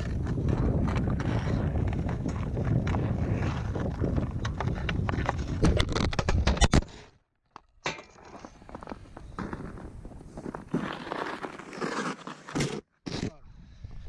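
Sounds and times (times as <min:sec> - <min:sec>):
wind rumbling on microphone: 0:00.0 - 0:06.7
skates and stick scraping ice: 0:00.0 - 0:07.1, 0:08.2 - 0:13.4.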